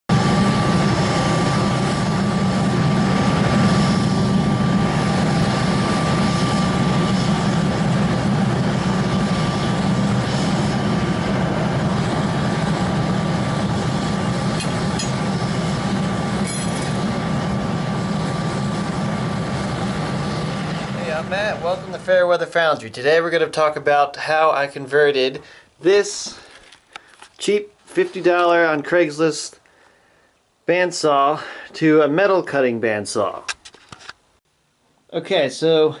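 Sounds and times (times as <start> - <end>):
blower thin whine: 0.1 - 22.8
furnace low drone: 0.1 - 29.9.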